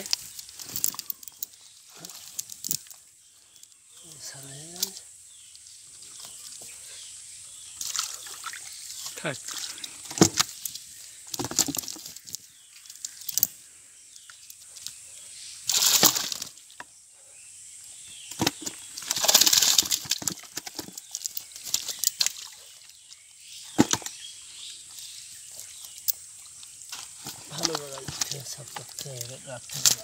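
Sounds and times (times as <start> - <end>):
fish flapping: 18.5 - 21.0.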